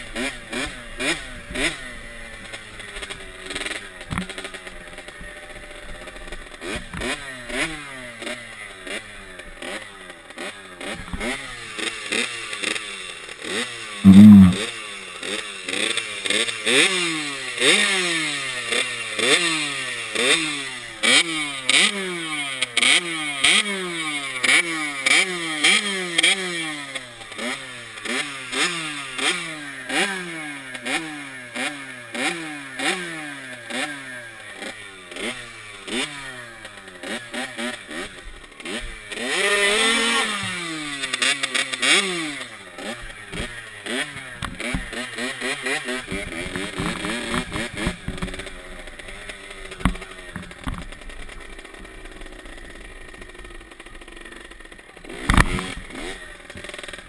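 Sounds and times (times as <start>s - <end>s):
dirt bike engine revving: 0.1s - 2.0s, 13.4s - 14.6s, 27.4s - 57.0s.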